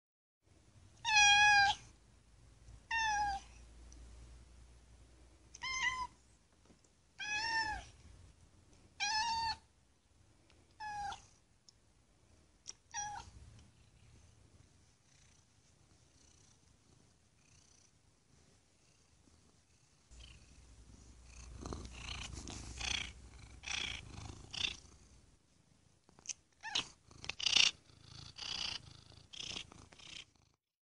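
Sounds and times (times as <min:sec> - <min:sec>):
cat meowing: 0:01.0 - 0:01.8, 0:02.9 - 0:03.5, 0:05.5 - 0:06.2, 0:07.2 - 0:07.9, 0:09.0 - 0:09.6, 0:10.8 - 0:11.2, 0:12.9 - 0:13.3, 0:26.6 - 0:26.9.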